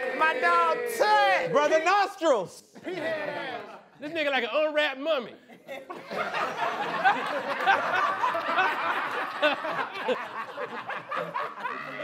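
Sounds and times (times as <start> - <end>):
people laughing: 2.8 - 4.0, 5.4 - 12.0.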